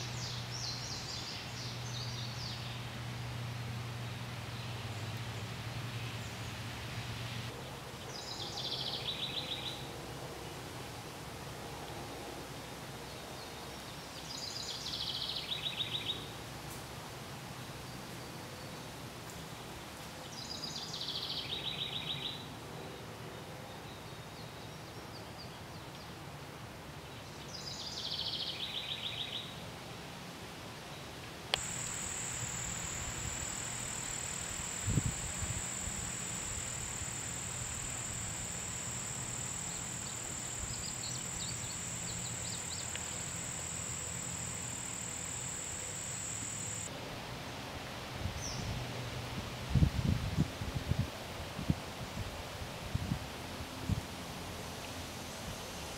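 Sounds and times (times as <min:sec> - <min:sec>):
high-pitched insect buzz: 0:31.6 - 0:46.9
songbird singing with trill: 0:31.6 - 0:46.9.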